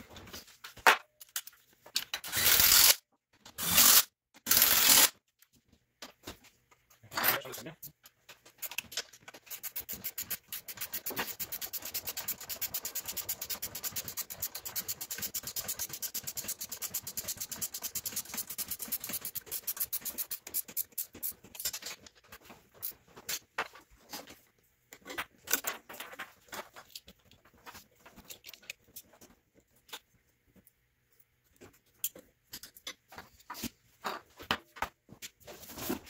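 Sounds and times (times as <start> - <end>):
rapid mechanical clicking: 9.5 - 21.1.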